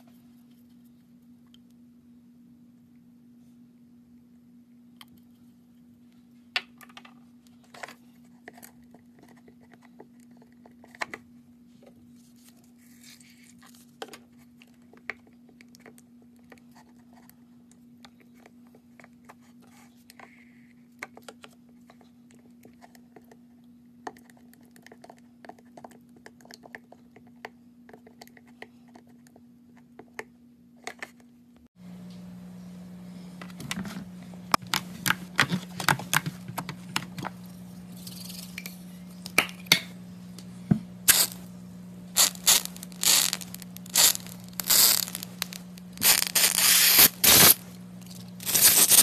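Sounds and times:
steady low hum: 27.7 - 49.0.

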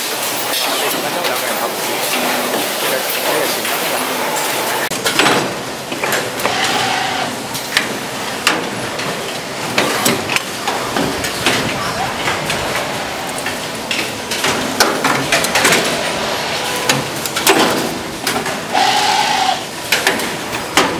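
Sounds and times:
steady noisy hiss: 0.0 - 20.9
machine clicks and knocks: 4.9 - 6.5, 7.6 - 16.0, 16.9 - 18.6, 19.8 - 20.9.

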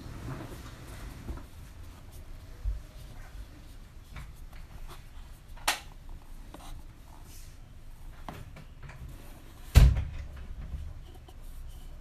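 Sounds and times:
thump: 9.7 - 10.9.

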